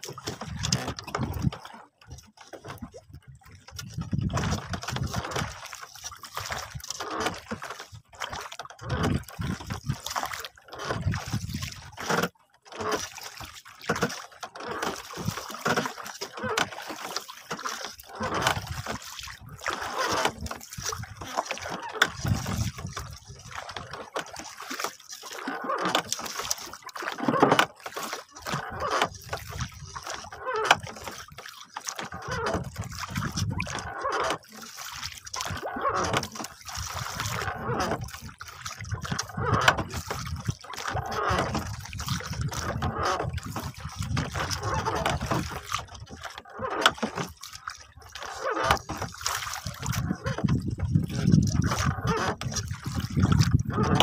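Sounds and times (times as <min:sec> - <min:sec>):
water splashing against boat hull: 0:00.0 - 0:54.0
wind buffeting microphone: 0:00.3 - 0:01.5, 0:03.1 - 0:05.3, 0:22.2 - 0:23.4, 0:49.8 - 0:54.0.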